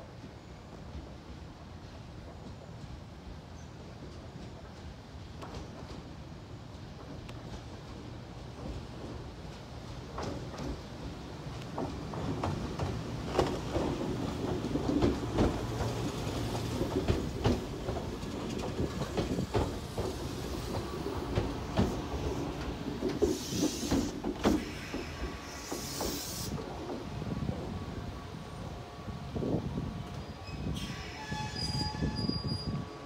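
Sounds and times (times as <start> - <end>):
train low rumble: 0.0 - 33.0
train wheels clacking over rail joints: 6.9 - 27.8
short hisses: 25.4 - 26.6.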